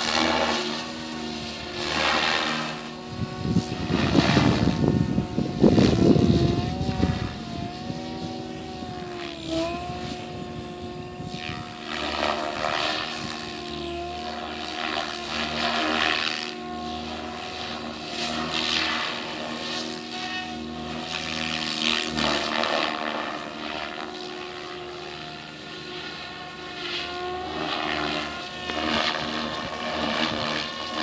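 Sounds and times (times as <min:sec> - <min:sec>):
wind noise on microphone: 0:00.0 - 0:16.4, 0:27.1 - 0:31.0
model helicopter rotor whine: 0:00.0 - 0:31.0.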